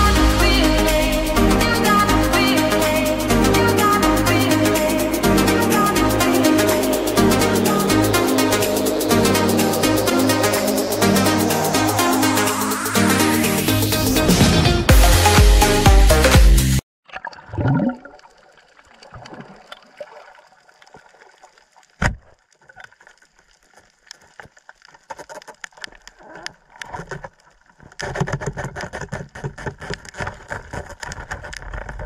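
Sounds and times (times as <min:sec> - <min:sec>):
gurgling water: 0:17.0 - 0:32.0
rushing bubbles crackle: 0:17.1 - 0:32.0.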